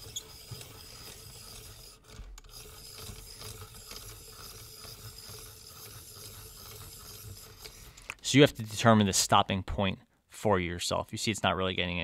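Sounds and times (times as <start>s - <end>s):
pencil sharpener cranking: 0.0s - 8.8s.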